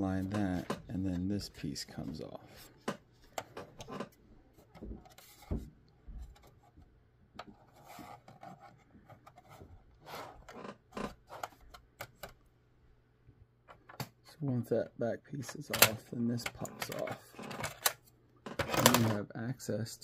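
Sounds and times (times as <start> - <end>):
case panels scraping and rubbing: 0.0 - 6.8, 7.4 - 12.4, 15.8 - 19.2.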